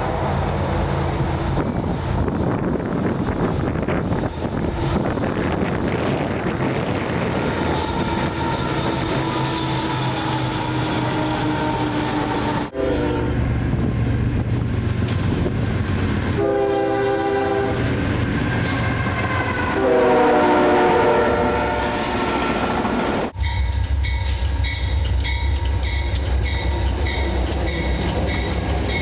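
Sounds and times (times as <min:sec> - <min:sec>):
diesel locomotives rumbling: 0:00.0 - 0:29.0
locomotive air horn blasts: 0:07.4 - 0:13.4, 0:16.4 - 0:17.9, 0:18.6 - 0:22.8.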